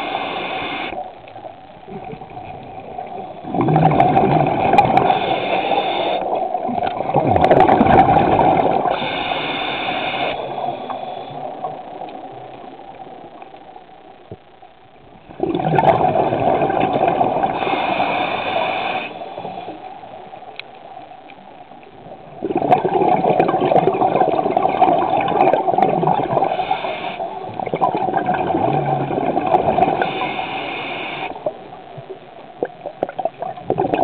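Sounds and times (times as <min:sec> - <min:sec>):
water gurgling and rushing: 0:01.9 - 0:05.6, 0:06.4 - 0:09.1, 0:15.3 - 0:17.7, 0:22.4 - 0:26.6, 0:27.5 - 0:30.0.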